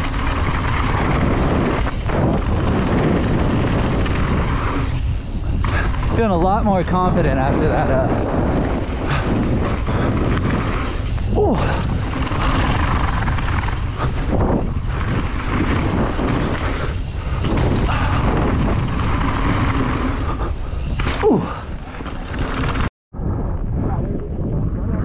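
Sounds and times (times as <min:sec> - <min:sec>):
mountain bike rattling: 0:00.0 - 0:22.9
tyres on wet rough trail: 0:00.0 - 0:22.9
wind rushing over microphone: 0:00.0 - 0:25.0
falling squeal: 0:03.4 - 0:07.3.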